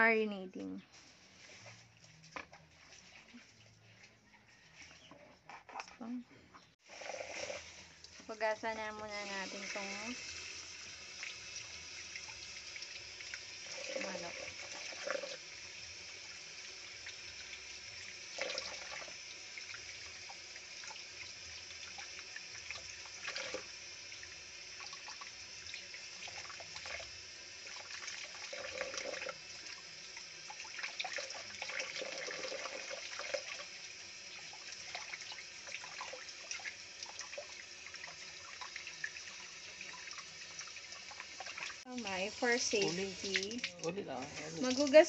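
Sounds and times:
tap water running: 6.8s - 45.0s
water splashes: 34.4s - 45.0s.

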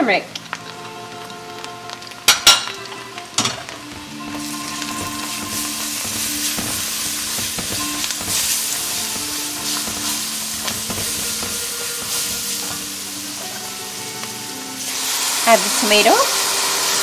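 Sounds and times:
onion sizzling in hot oil: 0.0s - 17.0s
spatula scraping pan: 4.2s - 13.8s.

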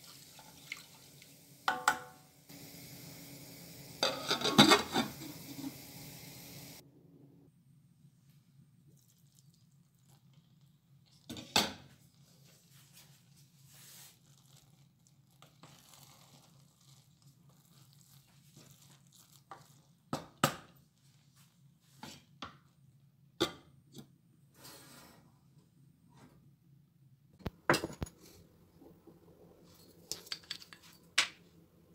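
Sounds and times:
spoon and lid knocking saucepan: 1.7s - 2.2s.

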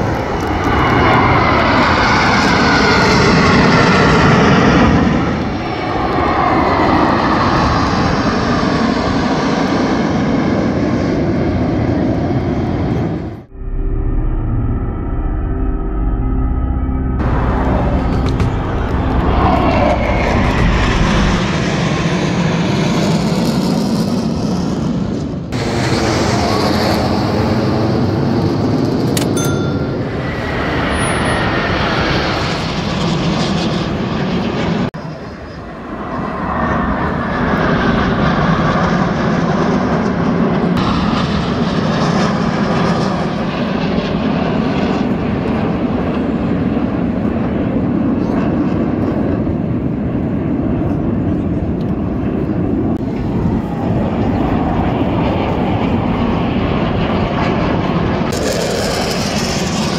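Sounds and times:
jets flying past: 17.1s - 29.2s, 29.9s - 59.9s.

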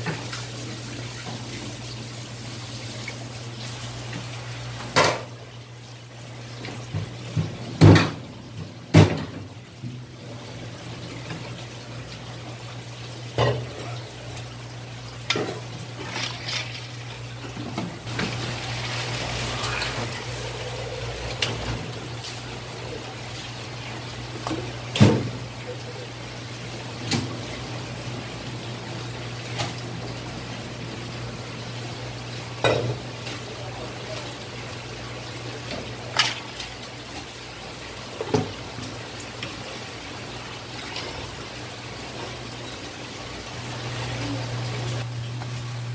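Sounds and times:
running water: 0.0s - 45.9s
steel bowls and utensils clattering: 15.3s - 17.2s
water splashing: 15.4s - 25.8s
steady low hum: 17.9s - 24.2s.

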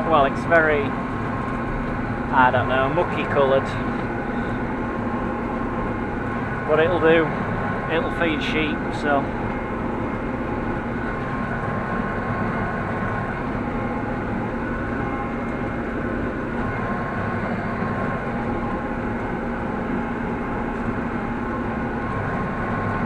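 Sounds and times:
constant whining tones: 0.0s - 23.0s
tractor engine drone: 0.0s - 23.0s.

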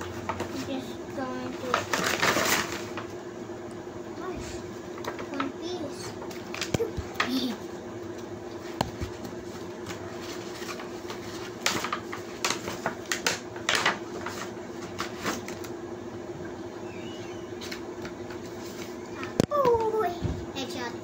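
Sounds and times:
plastic and paper packaging rustling: 0.2s - 3.1s, 4.5s - 7.6s, 8.6s - 15.7s, 17.6s - 20.0s.

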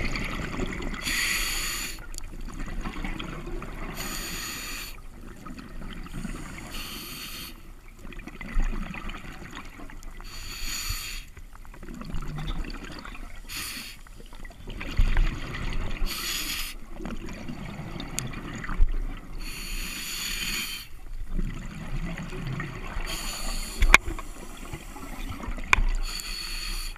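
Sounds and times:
exhaled air bubbling: 0.0s - 10.6s, 11.4s - 26.9s
diver inhaling through regulator: 1.0s - 2.0s, 4.0s - 5.0s, 6.2s - 7.7s, 10.2s - 11.3s, 13.5s - 14.1s, 16.0s - 16.8s, 19.4s - 21.0s, 23.1s - 25.4s, 26.0s - 26.9s.

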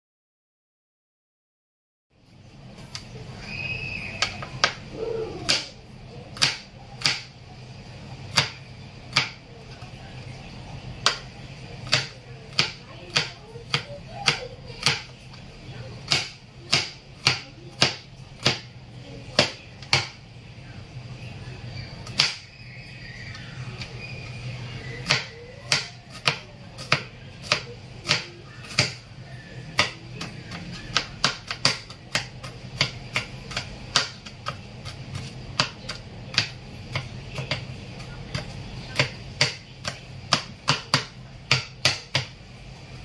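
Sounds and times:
cleaver chopping on cutting board: 6.4s - 7.3s, 11.0s - 15.1s, 16.1s - 18.7s, 25.0s - 29.0s, 29.7s - 37.6s, 38.3s - 42.3s.

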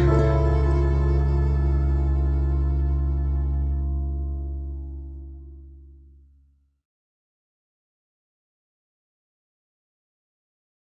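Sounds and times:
held music chord ringing: 0.0s - 6.0s.

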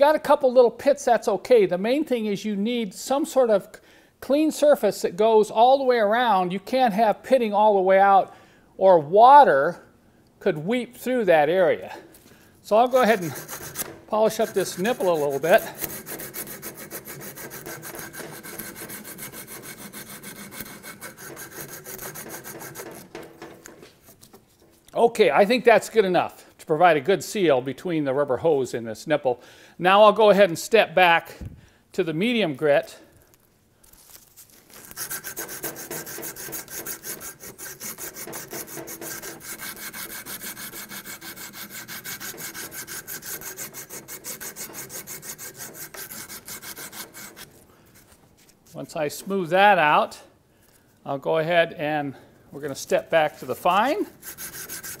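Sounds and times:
abrasive cloth rasping on metal: 12.7s - 24.8s, 34.8s - 48.2s, 52.9s - 55.0s.

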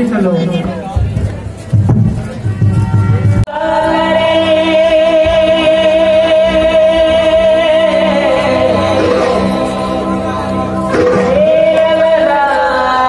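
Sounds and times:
steady musical accompaniment: 0.0s - 13.0s
person singing long vibrato note: 3.5s - 13.0s.

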